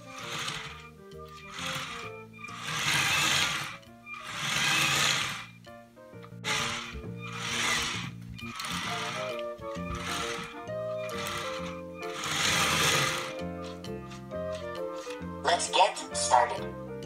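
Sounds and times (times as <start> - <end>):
small electric motors whirring: 0.0 - 5.6, 6.4 - 13.6
background music: 0.0 - 17.0.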